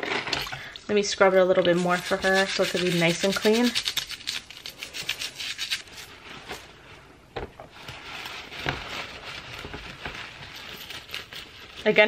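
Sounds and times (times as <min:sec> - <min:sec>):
brush scrubbing metal bracelet: 0:01.6 - 0:06.2
paper towel rustling: 0:05.8 - 0:12.0.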